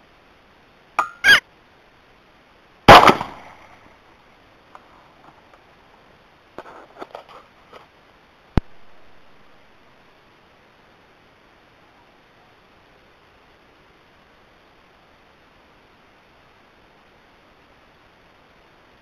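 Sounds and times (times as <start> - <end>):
short high squeaks: 1.0 - 1.4
rifle shot with echo: 2.9 - 3.6.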